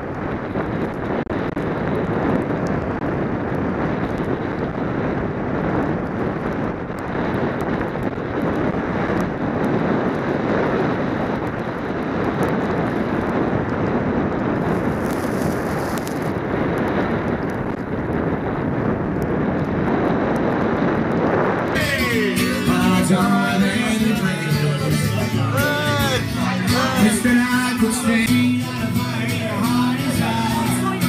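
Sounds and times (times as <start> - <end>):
wind rushing over microphone: 0.0 - 31.0
skis scraping on packed snow: 14.6 - 16.4.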